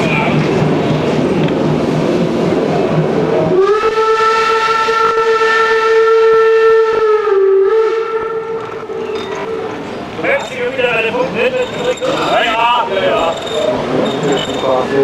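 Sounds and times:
train rumbling: 0.0 - 15.0
steam whistle blast: 3.5 - 8.7.

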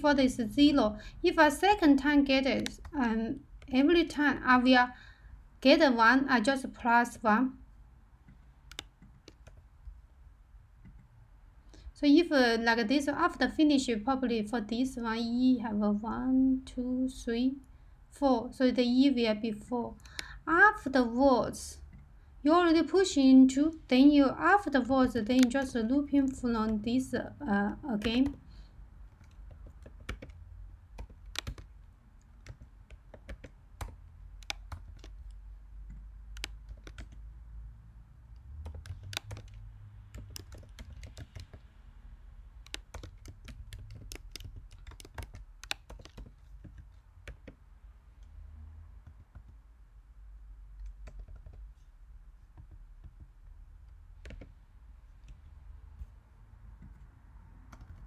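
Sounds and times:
typing on keyboard: 2.4 - 3.9, 8.3 - 9.7, 25.0 - 26.9, 27.7 - 28.4, 29.1 - 37.3, 38.4 - 41.7, 42.6 - 47.6, 49.0 - 49.6, 50.8 - 51.7, 52.6 - 54.6, 57.7 - 58.0.

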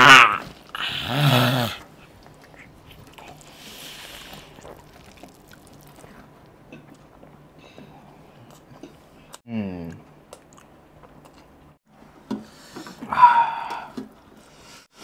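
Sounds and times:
faint chewing: 1.8 - 11.8
breathy hiss: 3.4 - 4.6.

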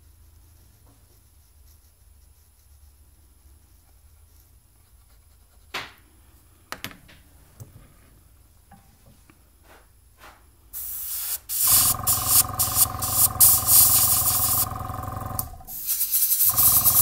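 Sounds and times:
airbrush air hiss: 10.8 - 14.8, 15.4 - 17.0
steady hum: 11.4 - 17.0.

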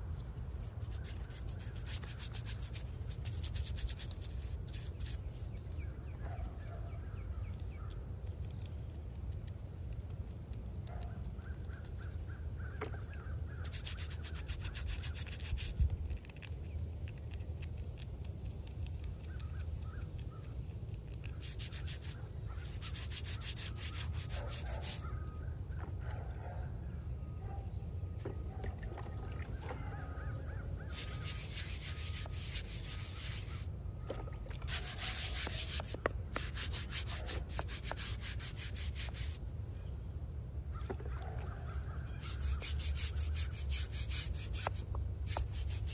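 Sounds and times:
brush scrubbing stone: 0.8 - 5.3, 13.6 - 16.5, 20.9 - 25.1, 30.7 - 33.7, 34.5 - 39.4, 41.7 - 45.9.

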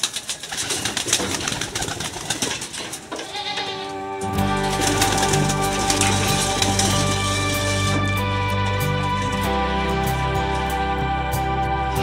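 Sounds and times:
pigeons shuffling: 0.0 - 3.2, 4.3 - 10.8
music: 3.3 - 12.0
pigeons cooing: 4.3 - 8.0.

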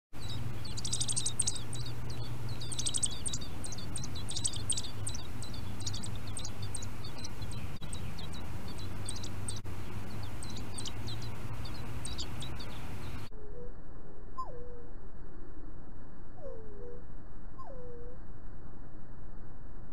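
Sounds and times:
nestlings cheeping: 0.2 - 13.3
steady low hum: 0.2 - 19.9.

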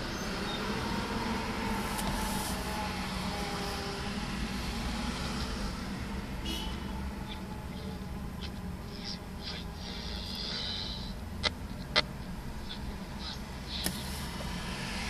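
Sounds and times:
radio hiss and static: 8.8 - 14.4.

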